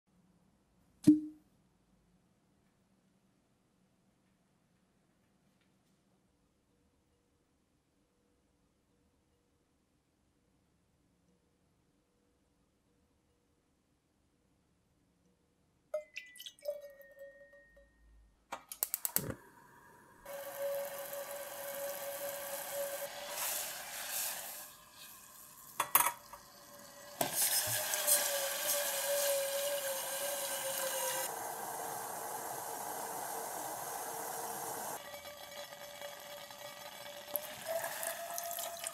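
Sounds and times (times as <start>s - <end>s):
liquid pouring into a saucepan: 16.0s - 17.4s, 20.3s - 38.9s
sauce boiling in a pan: 20.3s - 38.9s.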